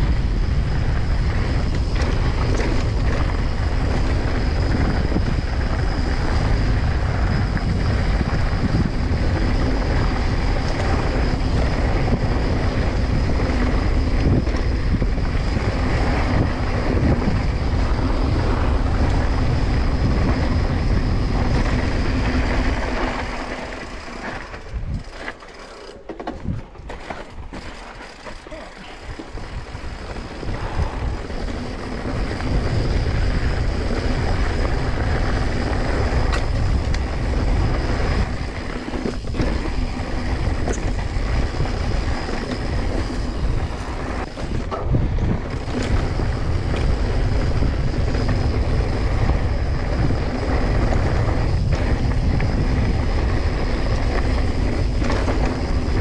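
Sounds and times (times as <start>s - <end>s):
wind buffeting microphone: 0.0s - 25.4s, 26.3s - 56.0s
bike tyres rolling over rocky dirt: 0.0s - 56.0s.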